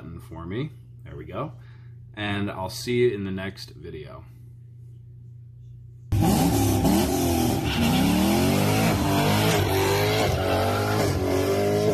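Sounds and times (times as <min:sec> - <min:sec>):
car engine accelerating through gears: 0:06.1 - 0:11.9.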